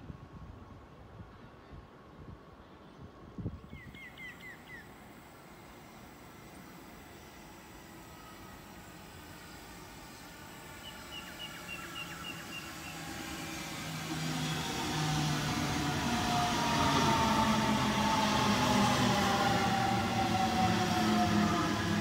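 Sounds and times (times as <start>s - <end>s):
train rumble: 3.2s - 22.0s.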